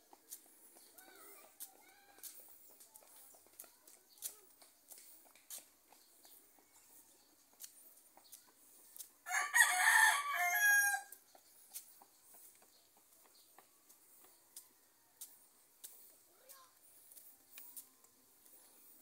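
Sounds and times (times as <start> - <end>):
footsteps on concrete road: 0.0 - 19.0
rooster crowing: 9.3 - 11.1.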